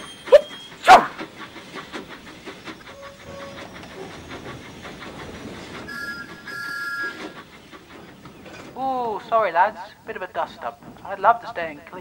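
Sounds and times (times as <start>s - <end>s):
steam locomotive chuffing: 0.0s - 12.0s
two-note steam whistle: 5.9s - 7.3s.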